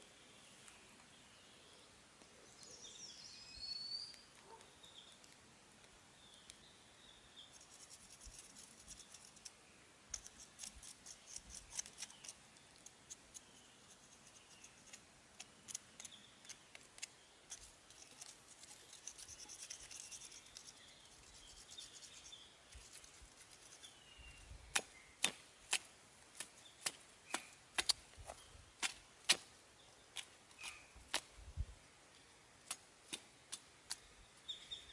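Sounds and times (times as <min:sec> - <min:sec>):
stick scraping charred skin: 0:07.4 - 0:24.0, 0:24.7 - 0:29.5, 0:30.1 - 0:31.3, 0:32.6 - 0:34.1.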